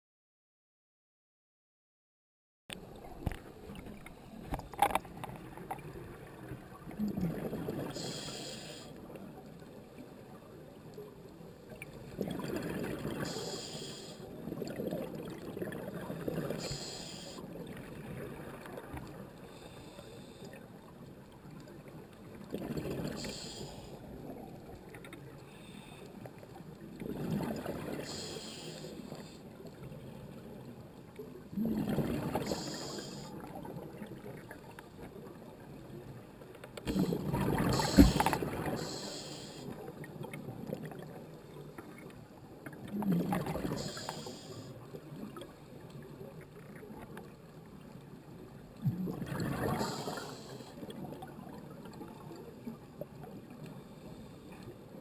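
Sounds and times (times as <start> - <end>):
bubbling underwater exhalations: 6.7 - 8.1, 12.2 - 13.4, 31.5 - 33.2, 36.8 - 39.2, 42.8 - 44.3, 48.8 - 50.5
regulator hiss: 8.0 - 8.9, 13.3 - 14.3, 16.6 - 17.4, 23.1 - 24.0, 28.0 - 29.3, 32.4 - 33.3, 37.7 - 39.8, 43.8 - 44.7, 49.8 - 50.7.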